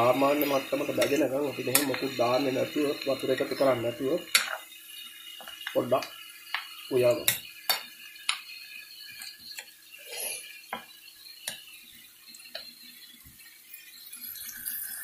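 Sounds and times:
meat sizzling: 0.0 - 15.0
spatula tapping a wok: 0.9 - 2.2, 4.3 - 4.6, 10.7 - 11.6.

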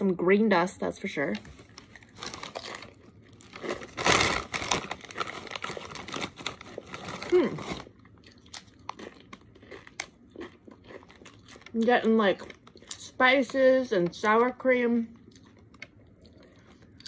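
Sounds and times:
tortilla chips crunching: 1.6 - 14.2.

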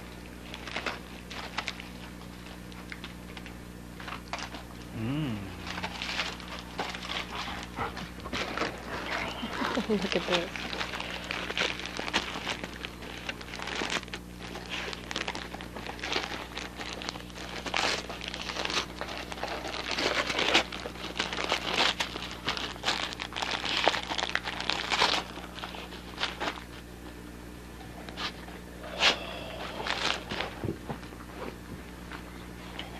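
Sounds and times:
dog tearing wrapping paper: 0.4 - 4.7, 5.6 - 26.9, 28.1 - 30.6.

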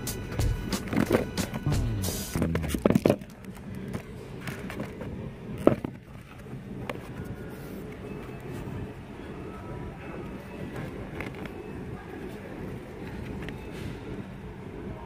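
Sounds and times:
background music: 0.0 - 2.8.

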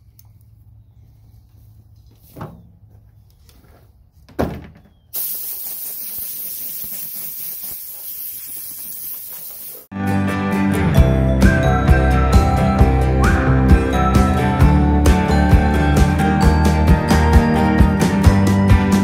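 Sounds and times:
air compressor hissing: 5.1 - 9.9.

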